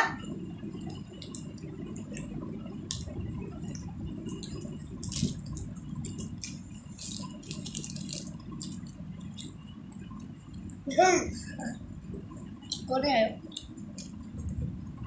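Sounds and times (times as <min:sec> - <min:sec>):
plastic wrapper rustling: 0:04.4 - 0:09.5.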